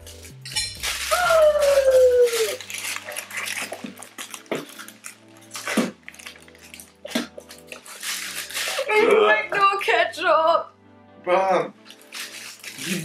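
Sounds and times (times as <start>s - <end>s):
people gagging and retching: 6.9s - 7.6s, 8.5s - 9.6s, 12.6s - 13.0s.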